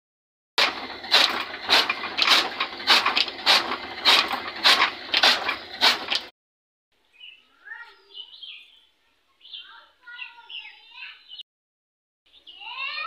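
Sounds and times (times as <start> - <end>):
chaff cutter chopping fodder: 0.6 - 6.3
faint bird chirps: 7.0 - 11.4.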